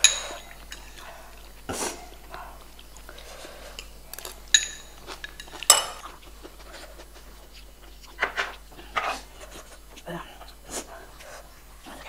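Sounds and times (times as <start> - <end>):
spoons clinking on ceramic bowls: 4.2 - 6.1.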